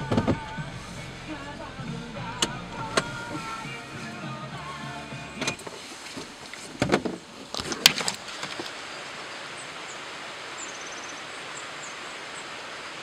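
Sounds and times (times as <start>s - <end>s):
outdoor hiss: 0.0s - 13.0s
small bird chirping: 10.6s - 12.0s.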